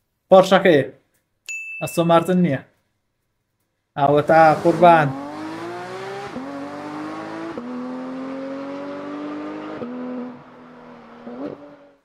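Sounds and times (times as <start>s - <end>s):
sports car engine accelerating: 4.2s - 12.0s.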